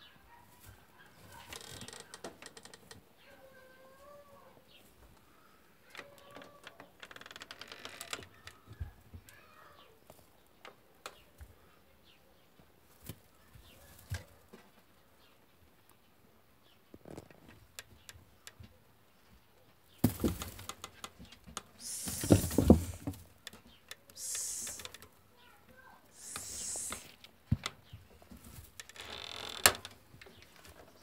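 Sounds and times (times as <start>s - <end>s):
rabbits scrabbling in hutch: 0.1s - 4.0s, 5.9s - 15.4s, 16.9s - 31.0s
rustling of straw bedding: 21.8s - 23.2s, 24.2s - 25.0s, 26.1s - 27.1s
faint bird calls: 24.1s - 27.1s.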